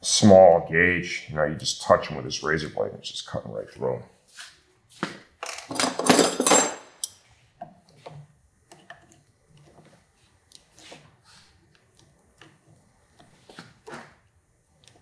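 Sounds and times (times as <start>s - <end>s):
metal hand tools clattering: 5.4s - 7.1s.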